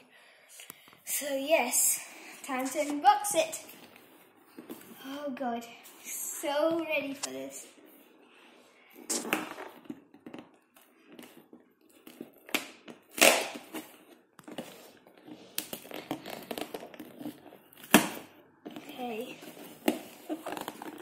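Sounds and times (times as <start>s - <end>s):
cardboard and tape ripping: 12.0s - 18.3s, 18.9s - 21.0s.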